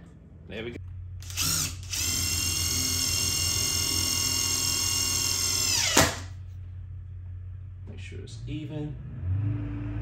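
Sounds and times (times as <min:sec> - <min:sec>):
drill motor whine: 0:01.2 - 0:06.2
drill click: 0:01.2 - 0:06.3.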